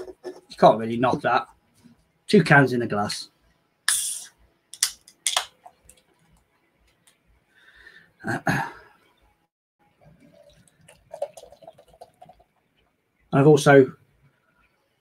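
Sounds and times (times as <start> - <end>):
beer pouring and fizzing: 9.9 - 12.7.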